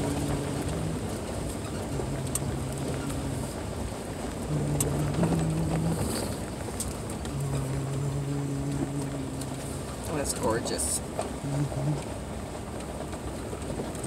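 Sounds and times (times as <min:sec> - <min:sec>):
tyre and road noise: 0:00.0 - 0:14.0
vehicle engine running: 0:00.0 - 0:14.0.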